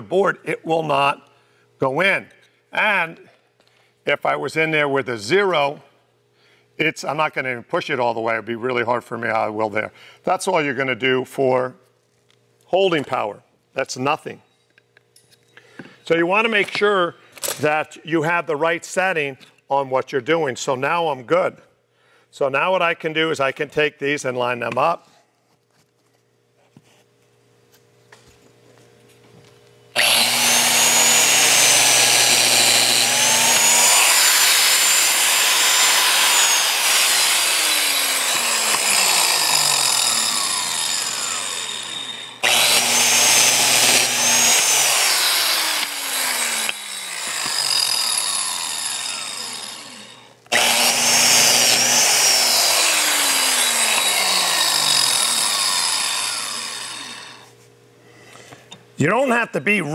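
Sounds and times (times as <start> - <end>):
biscuit joiner motor whining: 30.0 - 57.5.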